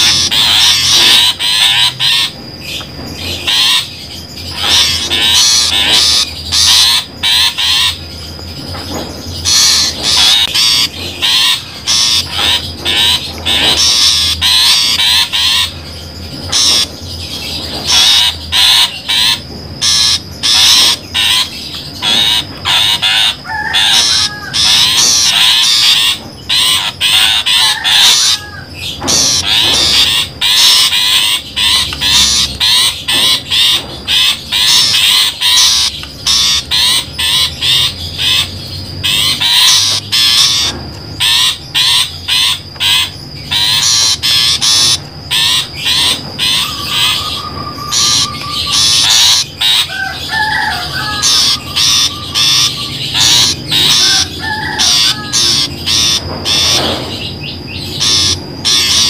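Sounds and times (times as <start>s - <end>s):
shrike harsh chattering calls: 0.0s - 59.0s
bird whistled phrases: 41.3s - 56.9s.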